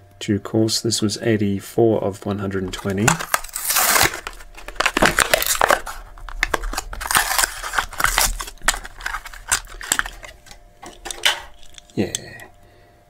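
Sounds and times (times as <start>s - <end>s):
card tearing: 2.7s - 12.0s
clicks and rustles: 2.7s - 12.5s
plastic blister crackling: 2.7s - 12.5s.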